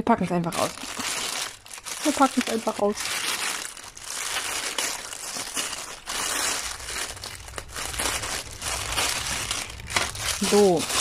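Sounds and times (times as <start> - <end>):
plastic bag crinkling: 0.2 - 11.0
scissors cutting plastic: 4.6 - 11.0.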